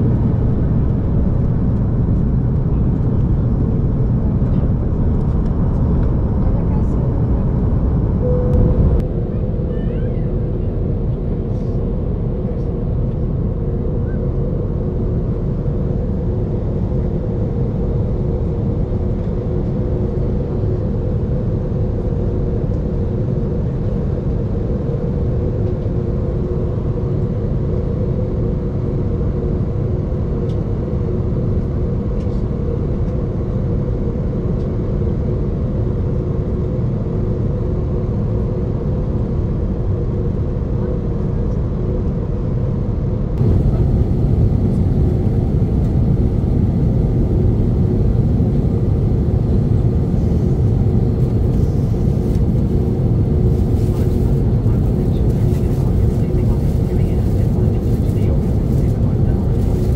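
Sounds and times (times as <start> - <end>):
steady hum tones: 0.0 - 16.5, 43.1 - 59.9
aircraft cabin engine rumble: 0.0 - 59.9.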